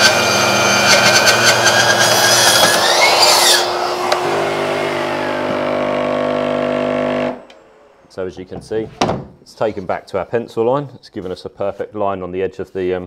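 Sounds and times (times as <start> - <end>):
circular saw cutting wood: 0.0 - 8.0
dust extractor humming: 0.0 - 8.1.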